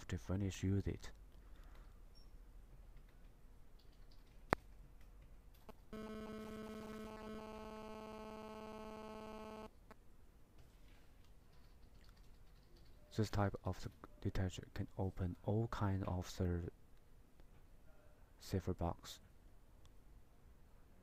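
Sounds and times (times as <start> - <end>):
electronic buzzer tone: 5.9 - 9.8.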